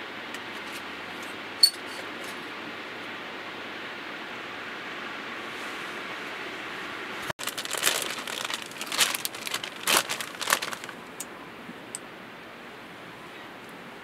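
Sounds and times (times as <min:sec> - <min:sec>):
crinkling and rustling: 0:07.4 - 0:11.3.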